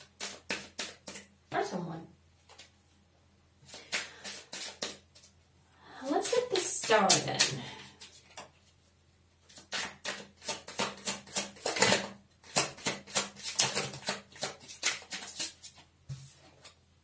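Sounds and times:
cards being shuffled: 3.7 - 5.3, 6.2 - 8.8, 9.4 - 16.8.

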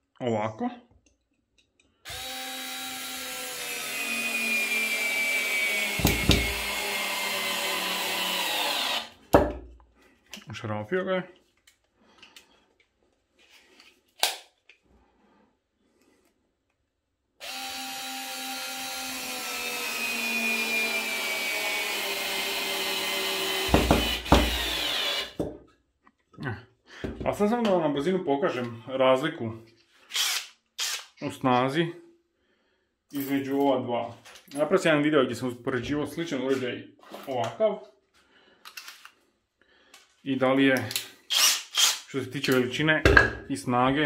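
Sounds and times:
cordless screwdriver motor whining: 2.1 - 9.1, 17.4 - 20.5, 24.2 - 25.4
knock: 23.7 - 24.5.

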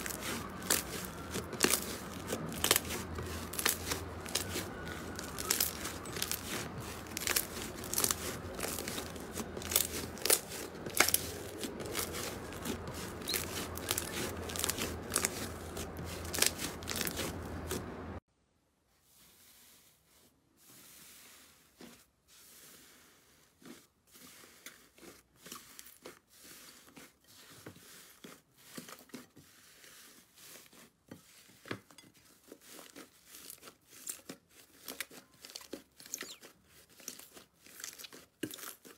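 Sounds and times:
slime crackling and popping: 0.0 - 17.9
low background hum: 0.0 - 18.2
slime squishing: 0.0 - 18.2, 20.8 - 38.9.

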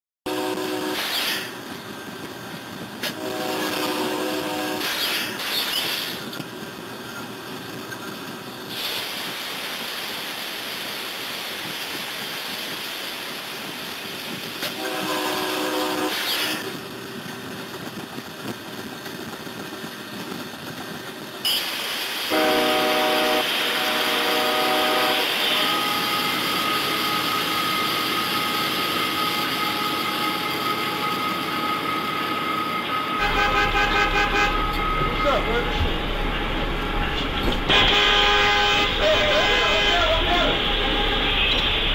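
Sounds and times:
locomotive air horn blasts: 0.3 - 1.2, 3.0 - 5.0, 14.6 - 16.7, 22.3 - 41.8
locomotive cab running noise: 13.7 - 41.9
steady higher tone: 25.8 - 41.9.

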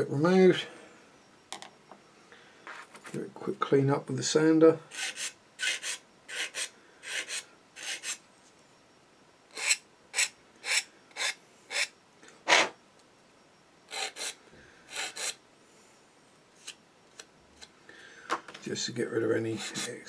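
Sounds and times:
sanding stick rasping on plastic: 5.0 - 8.2, 19.5 - 20.0.

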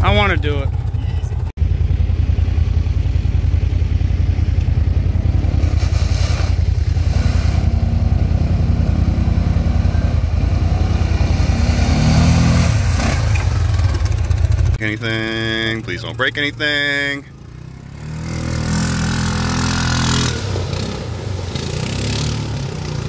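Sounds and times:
quad engine revving: 4.1 - 23.0.

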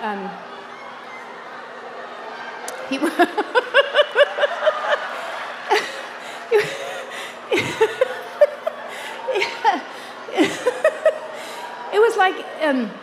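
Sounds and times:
woman laughing: 2.7 - 11.3
breaths: 5.1 - 7.5, 8.9 - 9.3, 9.9 - 10.3, 11.3 - 11.8.

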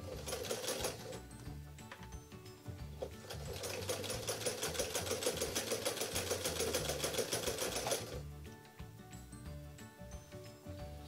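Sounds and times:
sewing machine clatter: 0.0 - 1.3, 3.0 - 8.2.

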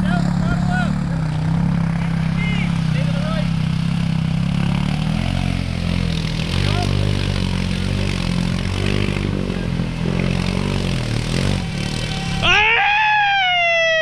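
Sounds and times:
off-road vehicle engine revving: 0.0 - 14.0
long falling pitched glide: 11.9 - 14.0.

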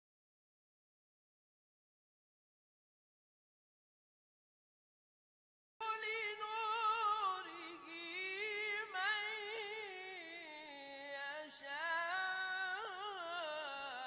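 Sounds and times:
person chanting recitation: 5.8 - 14.0.

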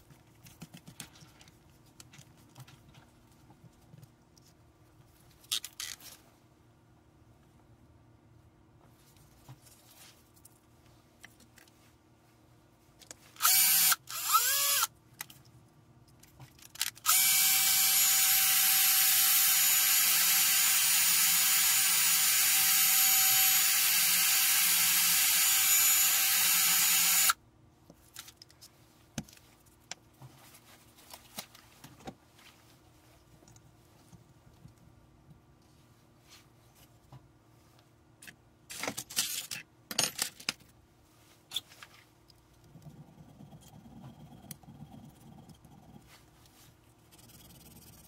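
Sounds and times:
cordless drill motor running: 13.4 - 14.9, 17.0 - 27.4.

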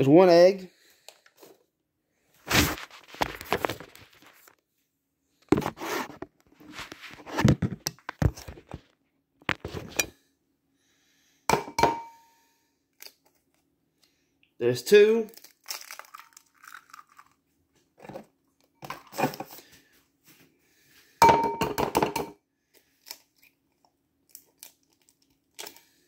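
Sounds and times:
eggs and bowl knocking and clinking: 11.5 - 12.2, 21.2 - 22.4
bowl ringing: 11.6 - 12.4.

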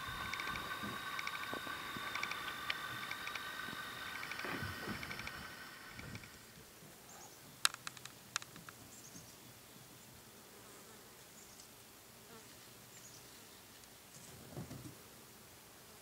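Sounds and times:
sharp clicks: 0.0 - 6.5, 7.6 - 8.8
low insect buzz: 0.0 - 7.8.

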